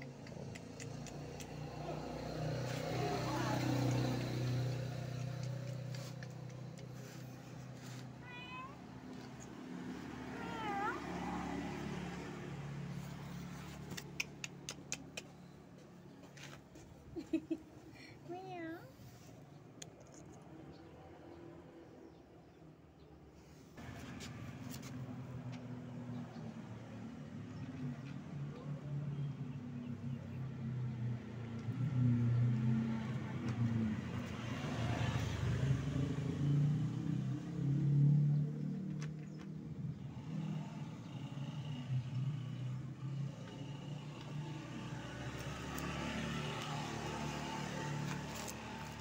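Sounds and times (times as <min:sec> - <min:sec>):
sharp clicks: 0:00.0 - 0:01.6
vehicle engine droning: 0:00.0 - 0:08.2, 0:23.8 - 0:49.0
traffic passing: 0:00.0 - 0:49.0.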